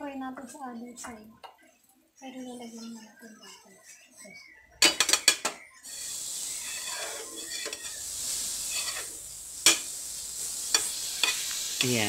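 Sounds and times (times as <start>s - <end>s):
pancake sizzling in pan: 4.8s - 12.0s
metal spoon clicking on pan: 9.6s - 9.9s.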